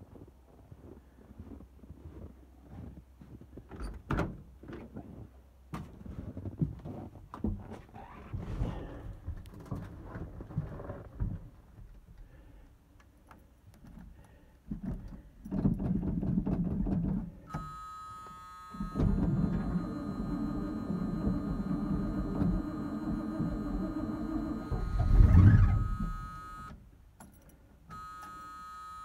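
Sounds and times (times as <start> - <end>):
engine starter cranking: 17.5 - 26.7.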